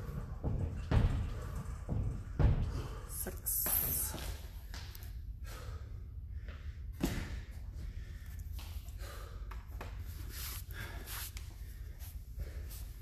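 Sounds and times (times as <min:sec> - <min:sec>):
man breathing hard: 0:05.1 - 0:13.0.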